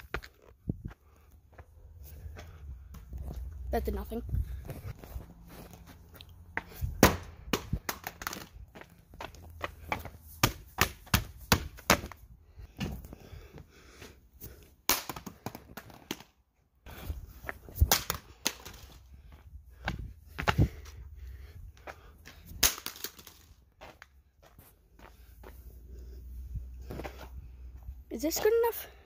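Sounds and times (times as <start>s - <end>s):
footsteps: 0.0s - 7.0s, 16.9s - 29.0s.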